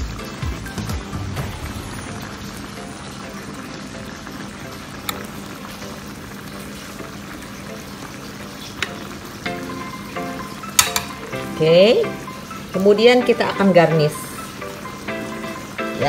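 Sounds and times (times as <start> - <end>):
metal spoon clinking on dish: 10.7 - 11.3.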